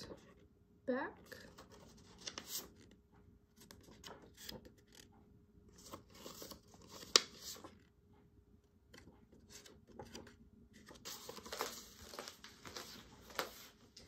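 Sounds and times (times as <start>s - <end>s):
paper cards rustling: 1.4s - 2.9s, 3.6s - 5.1s, 5.7s - 7.9s, 8.9s - 14.0s.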